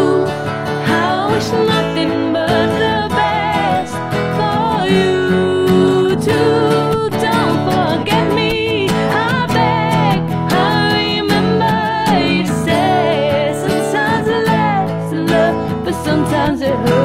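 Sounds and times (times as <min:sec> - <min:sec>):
slow ballad with singing: 0:00.0 - 0:17.0.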